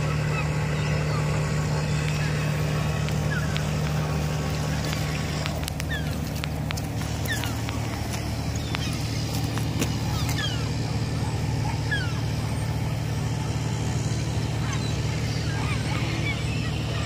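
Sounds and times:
falling bird chirps: 0.0s - 12.9s
low engine hum: 0.0s - 17.0s.

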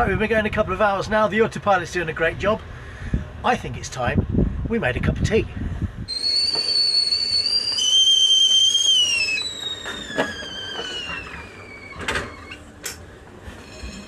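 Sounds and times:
kettle whistling: 6.1s - 12.6s.

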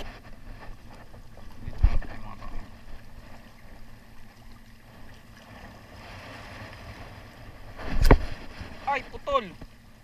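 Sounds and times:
wind rumble on microphone: 5.6s - 9.0s.

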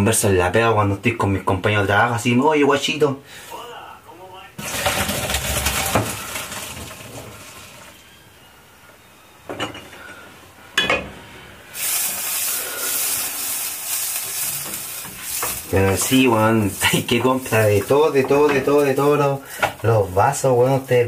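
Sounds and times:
hot water splashing into a sink: 4.6s - 8.0s, 11.7s - 19.9s
steady hiss: 10.1s - 21.0s.

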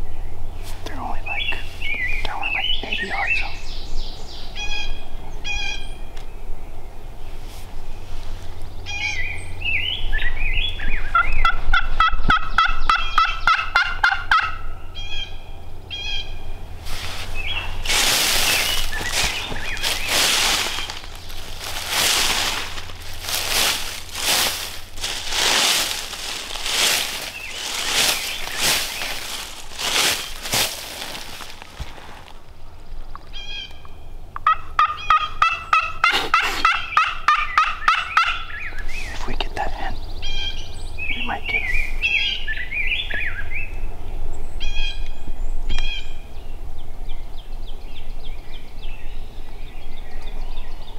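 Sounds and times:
turkey gobbling: 11.1s - 15.3s, 34.4s - 38.8s
turkey yelping: 11.1s - 15.3s, 34.4s - 38.7s
rustling crunches: 16.8s - 32.8s.

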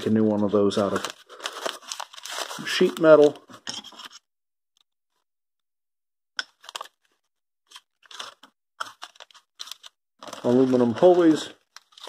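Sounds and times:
packing paper crinkling: 0.0s - 4.2s, 6.6s - 7.1s, 7.7s - 12.0s.

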